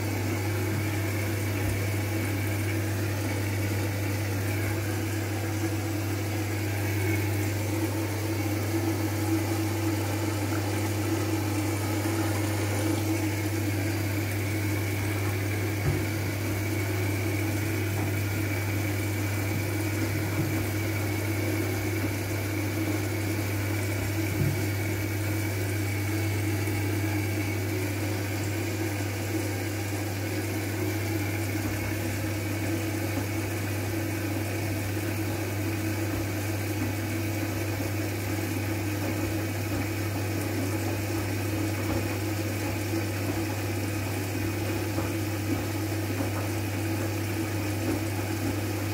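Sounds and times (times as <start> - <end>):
washing machine motor hum: 0.0 - 48.9.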